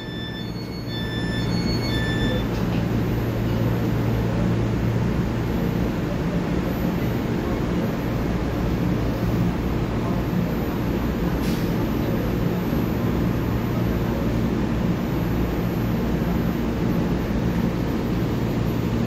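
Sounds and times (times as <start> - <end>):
electronic beeps: 0.0 - 2.5
electric train humming: 0.0 - 9.1.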